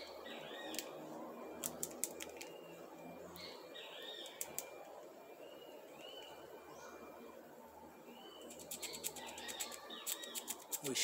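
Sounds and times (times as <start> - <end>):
birds chirping: 0.0 - 11.0
squirrel gnawing nut shell: 1.6 - 2.6, 8.5 - 11.0.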